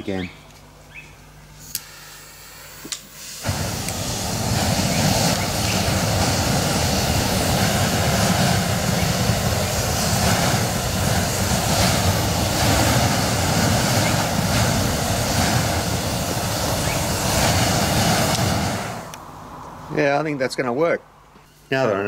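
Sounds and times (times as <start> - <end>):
burner flame roaring: 2.8 - 20.0.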